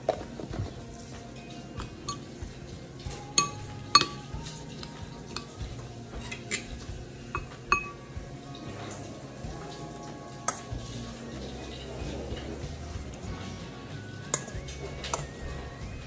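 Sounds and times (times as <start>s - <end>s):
metal spoon clinking on ceramic bowl: 3.2s - 4.3s, 7.4s - 8.0s.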